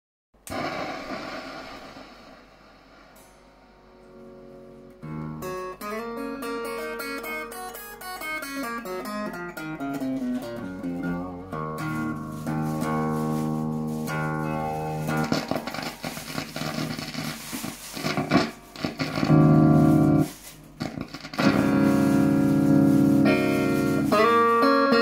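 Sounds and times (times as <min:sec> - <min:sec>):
clean electric guitar notes: 0:03.2 - 0:17.1.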